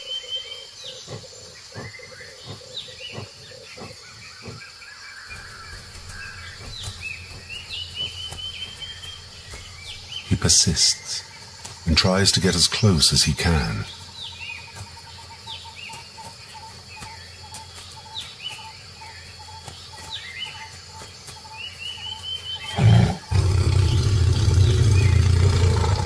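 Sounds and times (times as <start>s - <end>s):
birds chirping: 0.0s - 26.0s
tiger growling: 0.1s - 11.3s, 22.6s - 26.0s.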